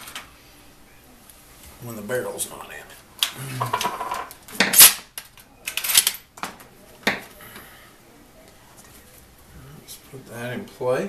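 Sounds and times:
shotgun parts clanking: 0:03.7 - 0:06.5.

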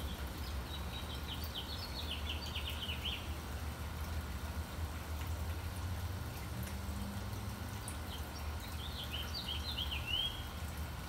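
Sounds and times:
songbird chirping: 0:00.0 - 0:03.4, 0:08.0 - 0:10.6.

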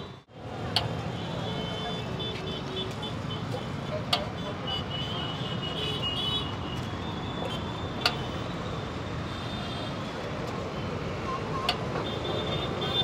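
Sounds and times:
roadside traffic: 0:00.0 - 0:13.0.

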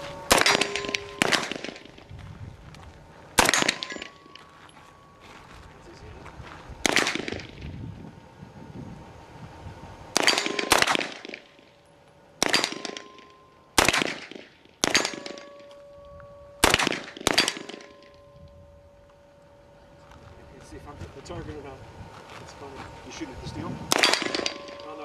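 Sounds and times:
steel targets ringing: 0:00.0 - 0:02.1, 0:03.3 - 0:06.1, 0:10.2 - 0:20.0, 0:23.9 - 0:25.0
submachine gun firing bursts: 0:03.4 - 0:04.1, 0:16.6 - 0:17.9.

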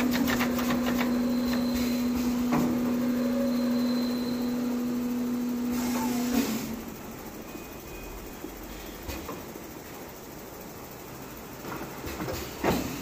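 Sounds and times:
pneumatic clicks: 0:00.0 - 0:02.8
filling machine humming: 0:00.0 - 0:10.8.

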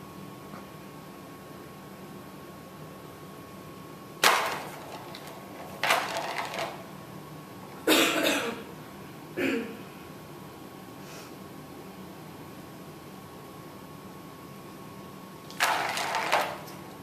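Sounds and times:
ball clattering around plastic track: 0:04.2 - 0:06.8, 0:15.5 - 0:16.8.

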